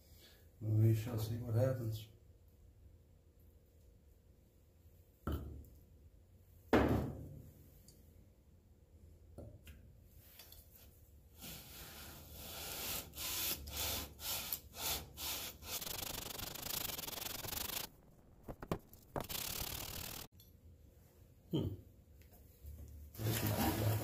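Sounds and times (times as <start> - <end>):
metal rubbing on wet abrasive paper: 12.4 - 20.3.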